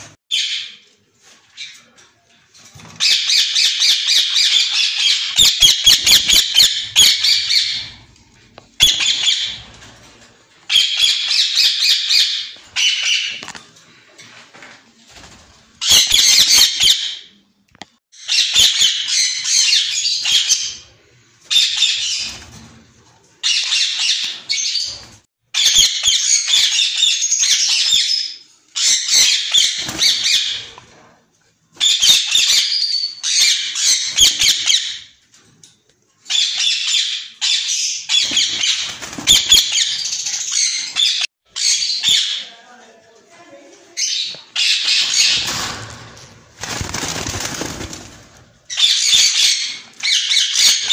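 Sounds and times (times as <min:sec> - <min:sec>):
parakeets calling: 0:03.0 - 0:08.0, 0:08.8 - 0:09.6, 0:36.3 - 0:42.4.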